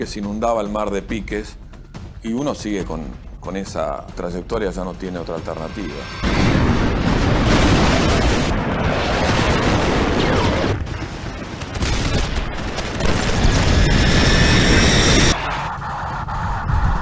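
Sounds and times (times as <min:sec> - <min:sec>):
high whine: 0:05.1 - 0:10.8, 0:13.0 - 0:17.0
low-flying jet aircraft: 0:05.6 - 0:17.0
anti-aircraft gunfire and booms: 0:06.0 - 0:15.4.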